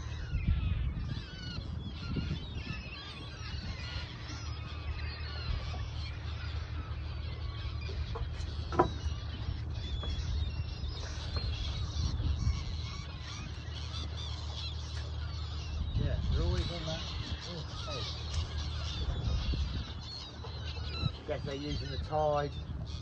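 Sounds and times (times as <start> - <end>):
distant seagulls calling: 0.0 - 23.0
outboard motor humming: 0.0 - 23.0.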